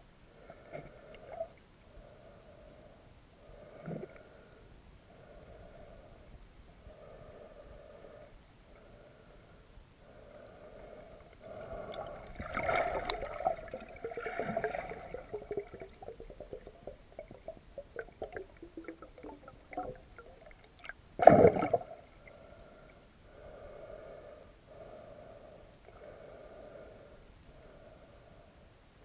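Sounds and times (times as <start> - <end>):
muffled underwater river gurgling: 0.3 - 4.6, 10.1 - 24.2.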